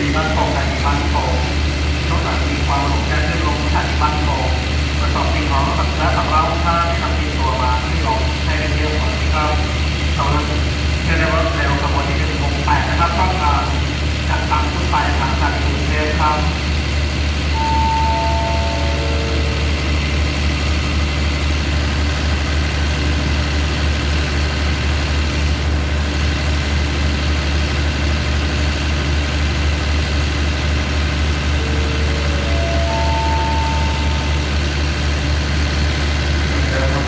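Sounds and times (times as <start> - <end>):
diesel train engine idling: 0.0 - 37.0
four-note chime: 17.6 - 19.9, 31.6 - 34.7.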